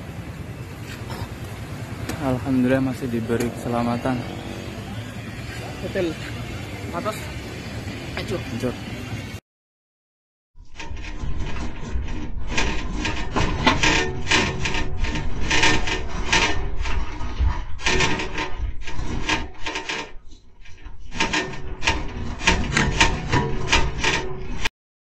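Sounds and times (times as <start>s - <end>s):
clattering and scraping: 0.8s - 7.4s, 10.6s - 24.7s
shop fittings rattling and creaking: 1.7s - 7.4s, 10.6s - 24.7s
low earthquake rumble: 10.6s - 24.7s.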